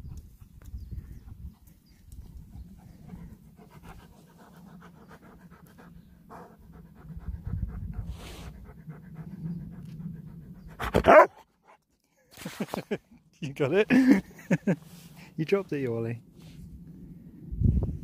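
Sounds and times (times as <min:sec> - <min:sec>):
dog panting rapidly: 0:00.0 - 0:11.0.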